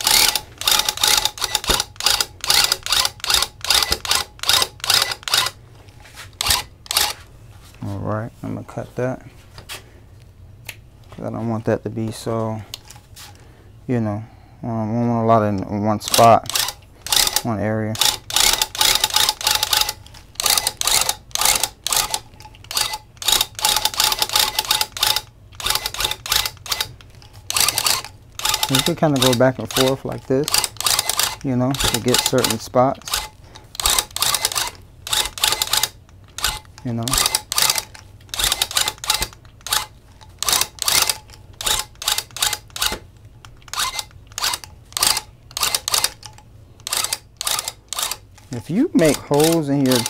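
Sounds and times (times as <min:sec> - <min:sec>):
electric tufting gun punching yarn: 0:00.0 - 0:05.6, 0:06.4 - 0:07.2, 0:18.0 - 0:26.9, 0:30.5 - 0:43.1.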